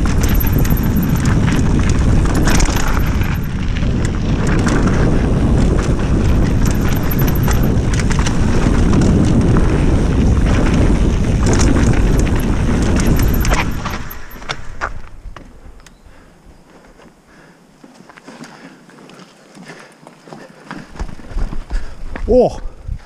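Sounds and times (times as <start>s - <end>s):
tyres rolling over earth: 0.0s - 14.4s
bike rattling over roots: 0.0s - 14.8s
wind buffeting microphone: 0.0s - 16.2s.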